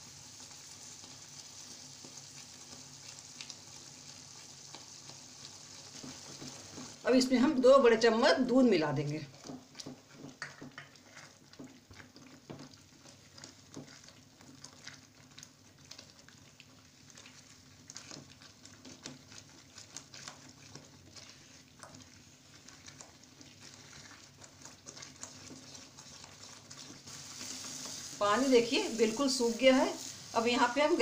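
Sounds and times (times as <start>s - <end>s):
faint sizzle: 0.0s - 31.0s
spoon scraping a frying pan: 9.3s - 15.0s.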